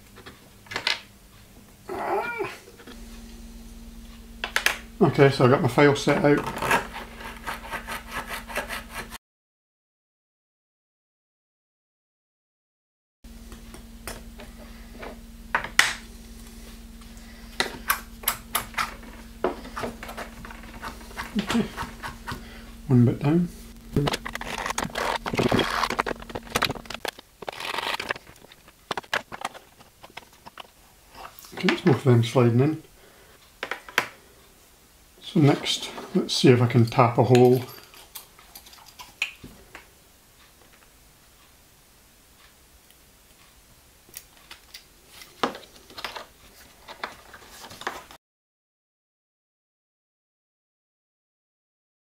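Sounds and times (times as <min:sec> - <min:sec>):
file rasping on plastic: 0:06.4 - 0:09.2
clicks and knocks of handled parts: 0:24.1 - 0:31.7, 0:36.8 - 0:39.8, 0:44.1 - 0:48.0.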